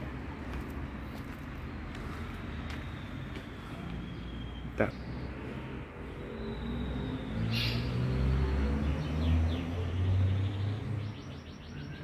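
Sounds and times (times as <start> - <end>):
bird chirps: 6.2 - 8.1, 8.8 - 12.0.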